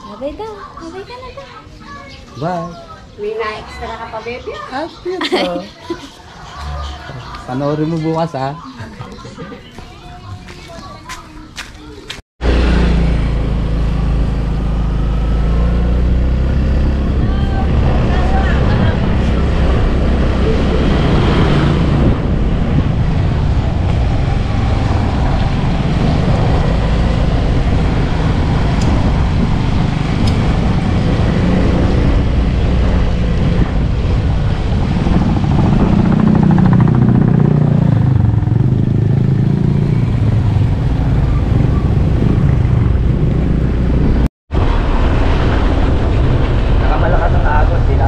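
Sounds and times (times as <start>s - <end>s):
road noise: 0.0s - 48.0s
motorcycle engine running: 12.4s - 44.2s.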